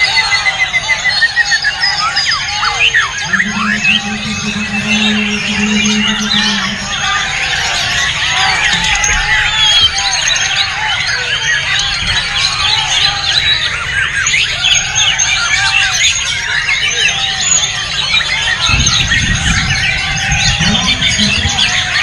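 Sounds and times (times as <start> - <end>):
low rumble: 3.2 - 7.4.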